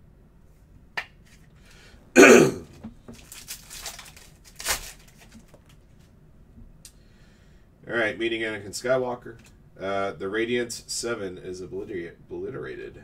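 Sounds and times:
person coughing: 2.2 - 2.7
wrapper crinkling and tearing: 3.1 - 5.9.

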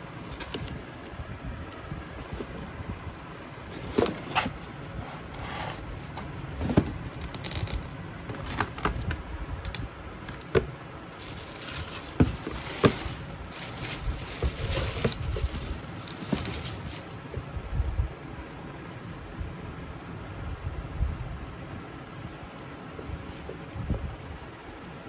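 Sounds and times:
cardboard box handled and opened: 3.6 - 9.0, 10.2 - 17.5
tissue paper rustling: 11.1 - 17.3.

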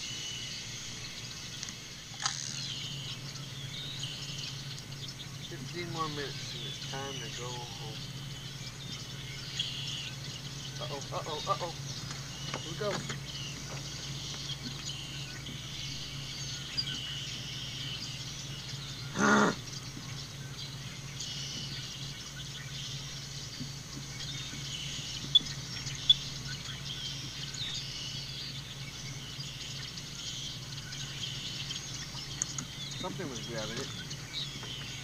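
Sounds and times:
faint bird chirps: 0.0 - 35.0
steady low hum: 0.0 - 35.0
sharp clicks: 1.6 - 2.6, 32.3 - 33.0.

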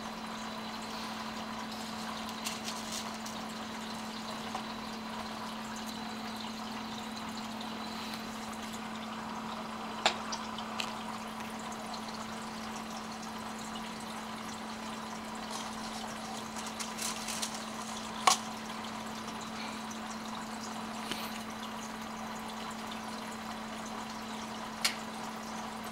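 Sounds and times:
aquarium filter humming: 0.0 - 25.9
trickling water: 0.0 - 25.9.

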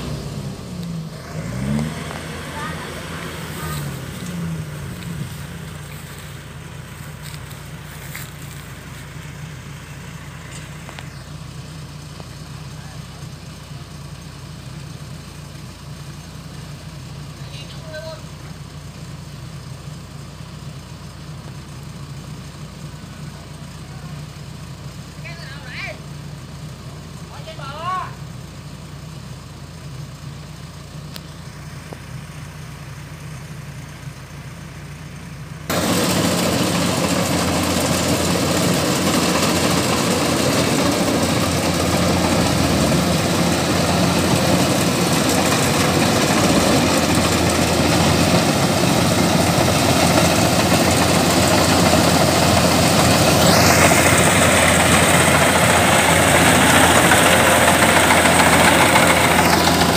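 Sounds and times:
combine harvester diesel engine: 0.0 - 59.9
rising whine: 35.7 - 59.9.

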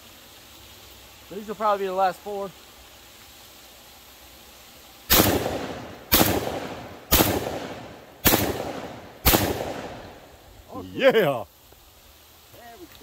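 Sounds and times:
gunshot echo: 5.1 - 10.2
shotgun blasts: 5.1 - 10.2.

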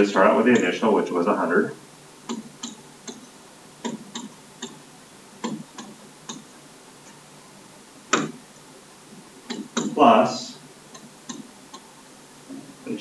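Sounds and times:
stylus tapping on tablet screen: 2.2 - 4.8, 5.4 - 6.5, 8.1 - 8.4, 9.5 - 10.0, 10.9 - 11.9.

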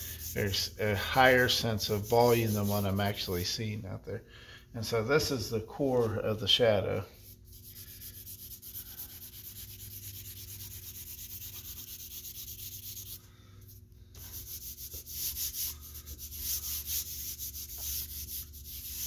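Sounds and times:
hand rubbing charcoal on paper: 1.8 - 3.0, 7.2 - 19.0
charcoal scratching on paper: 7.2 - 13.2, 14.2 - 19.0.

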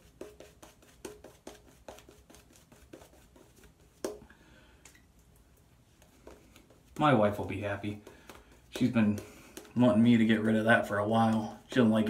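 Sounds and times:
shaving brush swishing lather: 0.0 - 4.2.

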